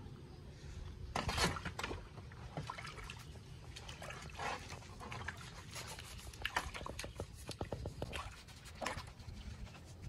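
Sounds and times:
water sloshing and splashing: 1.1s - 10.0s
brush scrubbing plastic: 5.3s - 10.0s.

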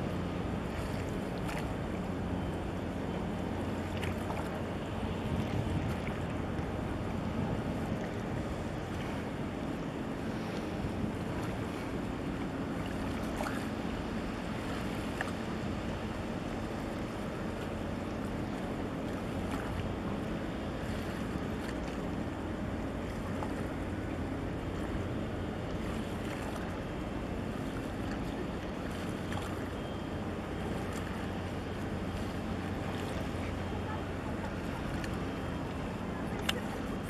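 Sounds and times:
boat engines droning: 0.0s - 37.0s
harbour water: 0.0s - 37.0s
wind on microphone: 5.2s - 9.4s.

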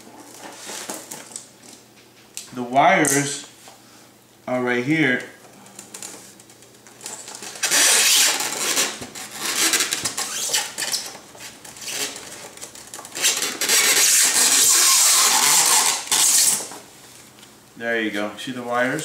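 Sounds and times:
plastic wrap rustling and crinkling: 0.0s - 2.2s, 5.7s - 17.5s.

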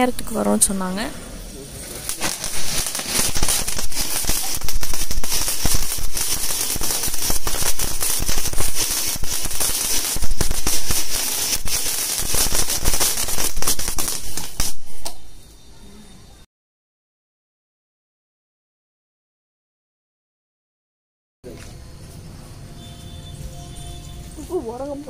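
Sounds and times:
fountain firework hissing and crackling: 0.0s - 15.4s, 22.5s - 25.0s.

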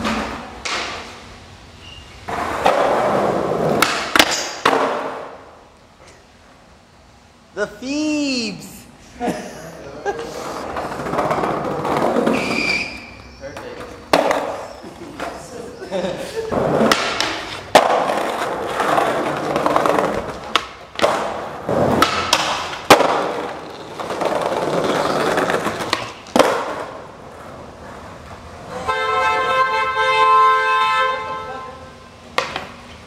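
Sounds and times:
skateboard clacks: 0.0s - 1.2s, 2.3s - 5.5s, 10.6s - 12.9s, 13.6s - 15.5s, 16.5s - 28.8s, 32.3s - 33.0s
skateboard wheels rolling on concrete: 0.0s - 6.8s, 10.2s - 29.1s, 31.6s - 33.0s
car horn: 28.7s - 32.2s.

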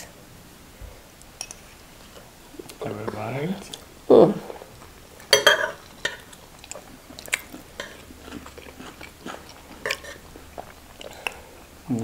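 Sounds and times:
cutlery clicking on plates: 5.3s - 6.2s
chewing: 5.8s - 11.8s.

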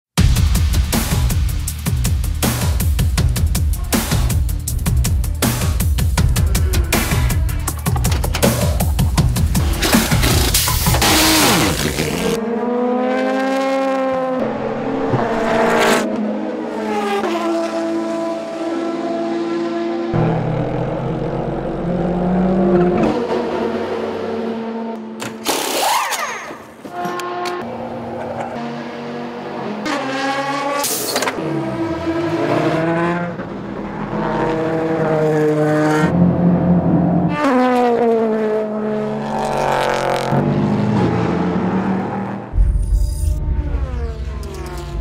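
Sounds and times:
race car engine at high revs: 7.8s - 25.8s, 27.0s - 42.6s, 43.3s - 45.0s
engine climbing through gears: 39.3s - 45.0s
car passing close: 43.3s - 45.0s.

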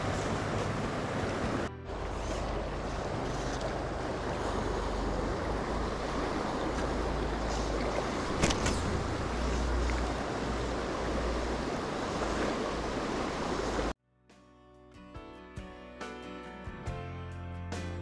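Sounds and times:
river water rushing over stones: 0.0s - 13.9s.

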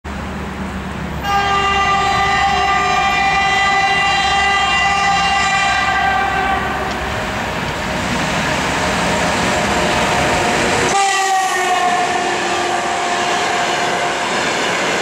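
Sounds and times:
low rumble of approaching train: 0.0s - 15.0s
locomotive horn: 1.2s - 7.1s, 9.4s - 15.0s.

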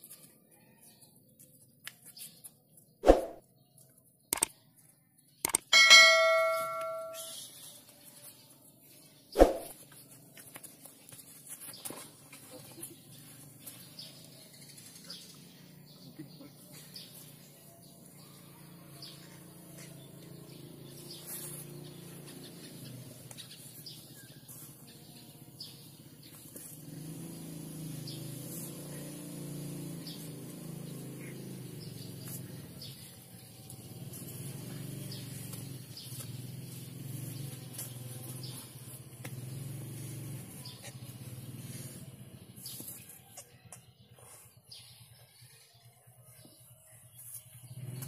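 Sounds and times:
birds chirping: 0.8s - 10.1s, 11.1s - 48.0s
passing motor vehicles: 11.8s - 43.1s, 47.4s - 48.0s.

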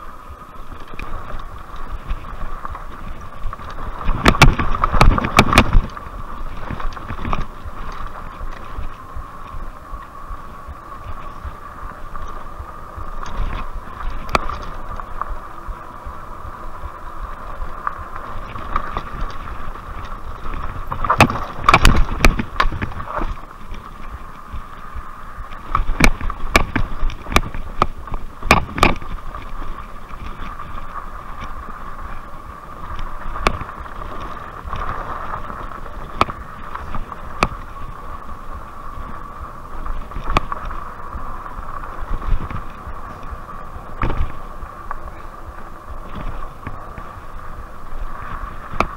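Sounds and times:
bike rattling over bumps: 0.0s - 48.9s
tyre rumble on dirt: 0.0s - 48.9s
wind on microphone: 0.0s - 48.9s.

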